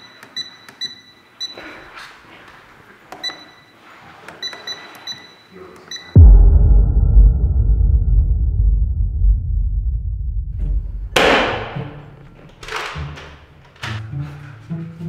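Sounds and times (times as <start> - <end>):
keypad lock beeps: 0.0 - 1.7, 3.2 - 3.7, 4.4 - 6.1
loud deep rumble: 6.2 - 11.8.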